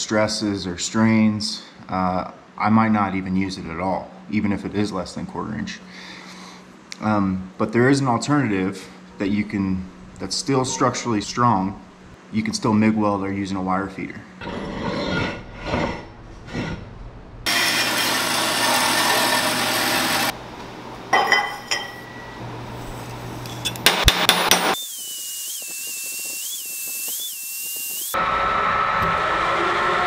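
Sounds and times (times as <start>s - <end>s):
milling cutter machining steel: 17.5s - 20.3s
steel pipes clanking on metal table: 21.2s - 22.3s
machine humming: 22.1s - 30.0s.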